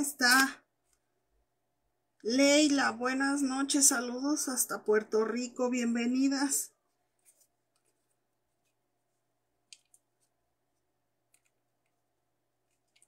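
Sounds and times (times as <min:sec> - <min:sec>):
faint clicks and taps: 0:06.9 - 0:08.8, 0:09.6 - 0:12.0, 0:12.6 - 0:13.0.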